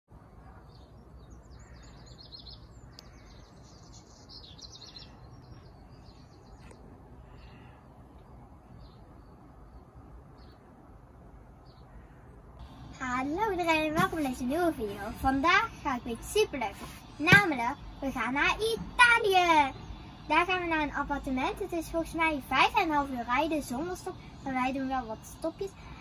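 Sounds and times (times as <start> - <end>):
small birds chirping: 0.3 - 10.6, 11.6 - 26.0.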